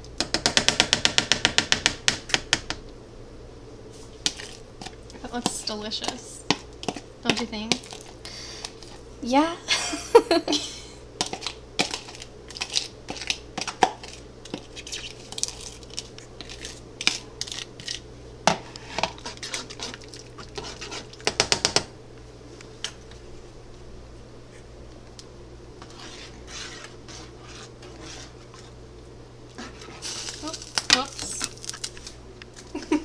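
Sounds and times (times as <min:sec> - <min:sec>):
metal spoon scraping a pan: 0:18.5 - 0:21.2, 0:25.8 - 0:28.7.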